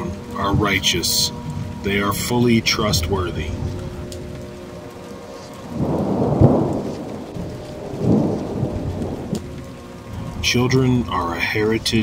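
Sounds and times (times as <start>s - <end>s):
steady rain: 0.0s - 12.0s
thunder rumbling: 0.0s - 12.0s
sharp thunder clap: 5.7s - 9.4s.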